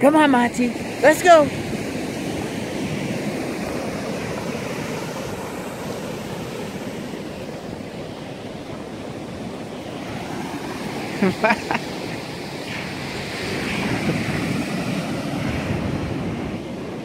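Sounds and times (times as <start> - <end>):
ocean surf on beach: 0.0 - 17.0
wind buffeting microphone: 0.0 - 17.0.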